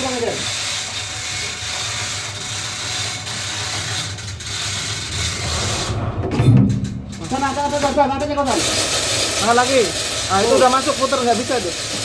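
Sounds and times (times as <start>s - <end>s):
chain hoists clicking: 0.0s - 6.0s, 6.8s - 12.0s
machinery drone with low hum: 4.4s - 8.9s.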